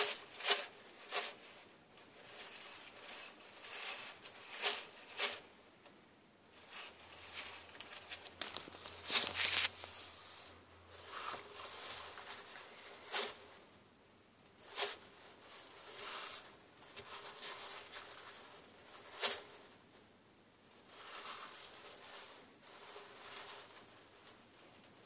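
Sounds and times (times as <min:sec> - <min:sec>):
rustling of wood chips: 0:06.6 - 0:13.6, 0:14.6 - 0:19.8.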